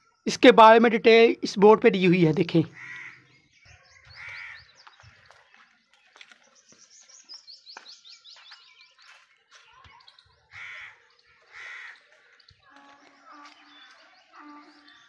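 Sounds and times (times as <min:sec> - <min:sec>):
bird chirping: 0:00.0 - 0:15.0
crow cawing: 0:02.7 - 0:03.4, 0:04.2 - 0:04.7, 0:10.5 - 0:13.6.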